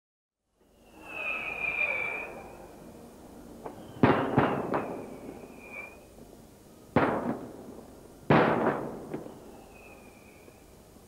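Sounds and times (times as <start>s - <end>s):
firework crack: 0.8s - 2.5s, 3.7s - 6.0s, 6.9s - 9.4s
firework bangs echoing: 3.8s - 5.4s, 6.9s - 9.4s.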